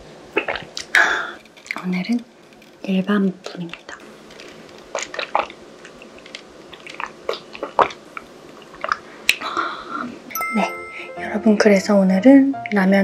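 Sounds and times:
gulps and swallows: 0.4s - 1.4s, 4.9s - 9.5s.

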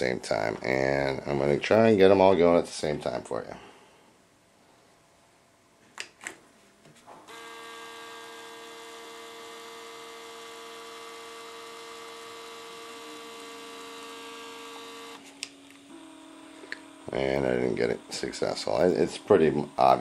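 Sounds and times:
motor clicks: 7.3s - 20.0s
shade motors humming: 7.3s - 20.0s.

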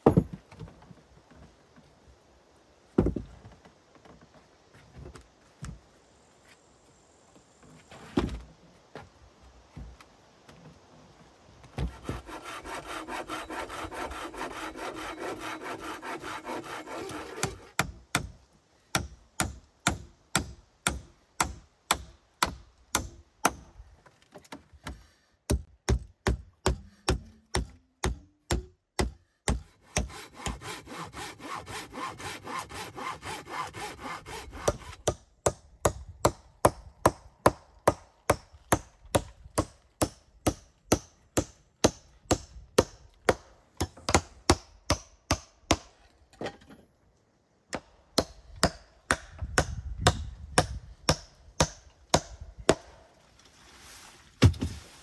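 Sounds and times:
hand saw cutting wood: 11.8s - 18.3s, 26.6s - 35.2s.

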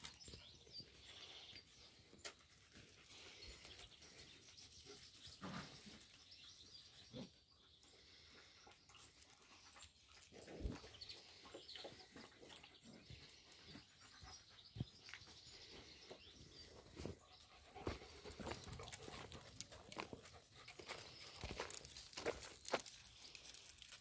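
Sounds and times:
scuffling on gravel: 17.8s - 24.0s.

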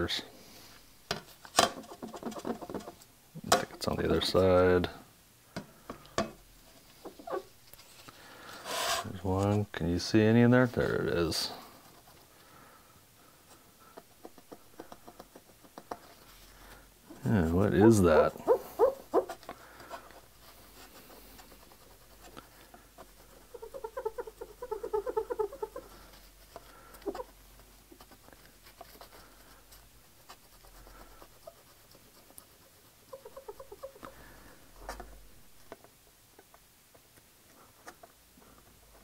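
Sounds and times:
wipe squeaking on glass: 7.0s - 7.5s, 17.8s - 19.4s, 23.3s - 25.9s, 33.1s - 34.0s
soft rubbing on glass: 14.0s - 35.4s.

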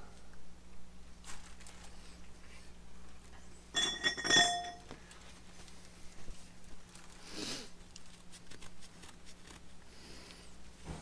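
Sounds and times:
metallic clinks with ringing tone: 3.8s - 4.9s.

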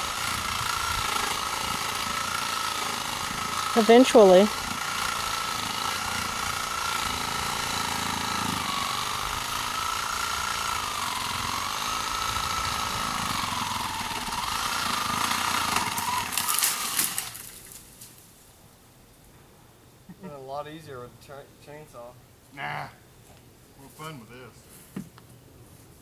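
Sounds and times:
power saw cutting tree limbs: 0.0s - 18.2s
wood crackling: 0.0s - 18.4s.

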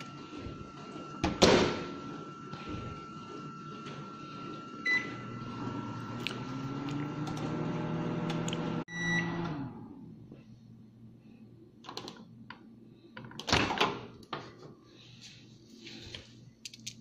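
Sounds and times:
microwave long beep: 0.0s - 6.2s, 7.6s - 9.8s
microwave oven humming: 0.0s - 15.0s
microwave keypad beep: 4.8s - 5.3s, 8.9s - 9.5s.

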